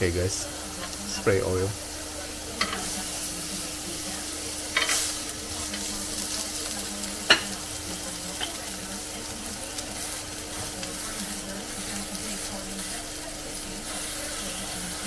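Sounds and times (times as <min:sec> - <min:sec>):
steaks sizzling on grill: 0:00.0 - 0:15.0
metal tongs clattering: 0:04.7 - 0:05.9.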